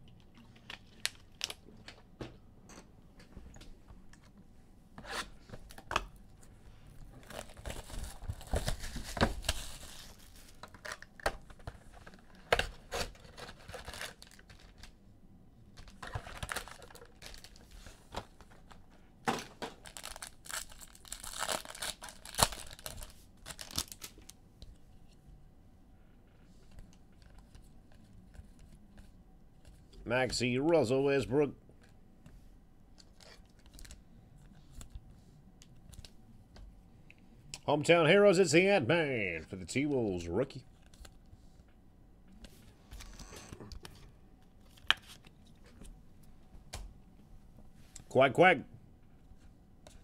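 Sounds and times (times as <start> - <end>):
card pack wrappers ripping: 7.2 - 15.0, 15.8 - 17.7, 19.8 - 24.3.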